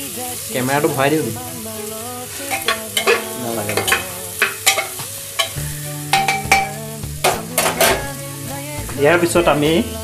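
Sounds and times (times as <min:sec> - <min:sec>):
vegetables sizzling: 0:00.0 - 0:10.0
metal ladle scraping pot: 0:02.5 - 0:06.7, 0:07.3 - 0:08.2.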